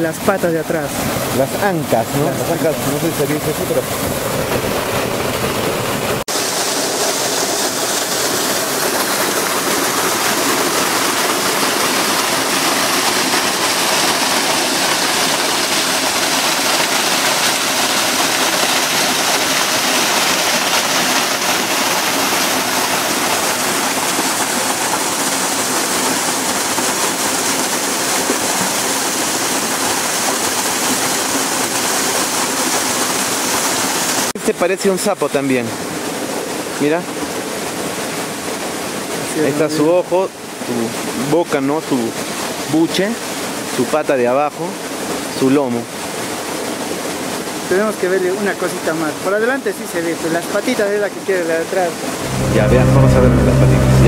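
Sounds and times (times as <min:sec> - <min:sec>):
steady rushing noise: 0:52.2 - 0:54.0.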